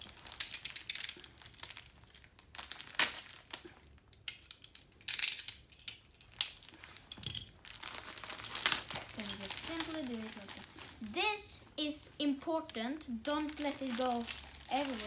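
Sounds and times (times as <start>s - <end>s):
packaging crinkling and tearing: 0.0s - 4.2s, 6.2s - 11.2s, 12.7s - 15.0s.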